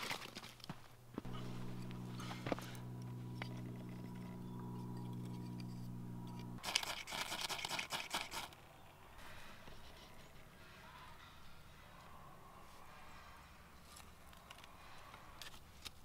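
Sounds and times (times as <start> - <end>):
steady low hum: 1.0 - 6.6
fire steel scraping: 1.3 - 6.6.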